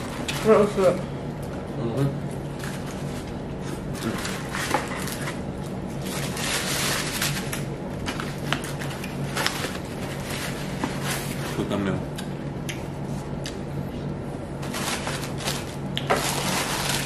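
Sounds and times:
low steady hum: 0.0 - 17.0
paper wrappers crinkling: 2.5 - 11.7, 14.6 - 17.0.

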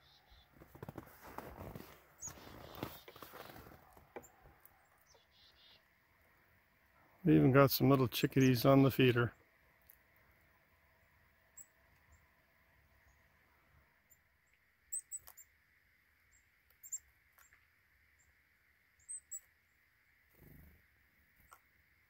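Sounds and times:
high bird chirps: 0.0 - 0.5, 4.2 - 5.9, 14.1 - 15.5, 16.3 - 17.6, 19.0 - 19.5.

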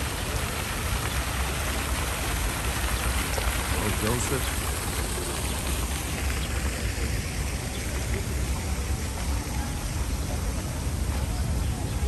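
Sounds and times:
fountain water splashing into basin: 0.0 - 12.0.

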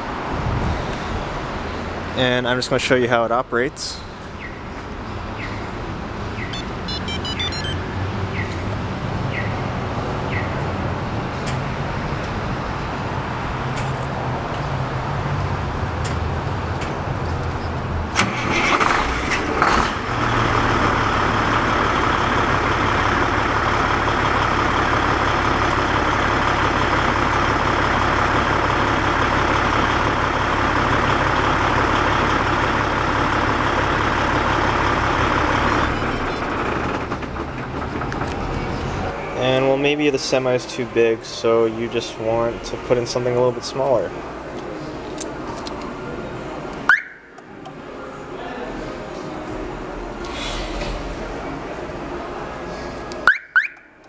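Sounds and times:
diesel engine cranking and idling: 0.0 - 54.0
remote starter chirps: 6.4 - 7.8.

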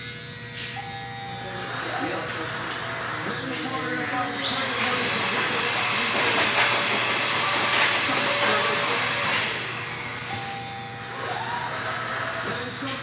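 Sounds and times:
blow dryer blowing air: 1.4 - 13.0.

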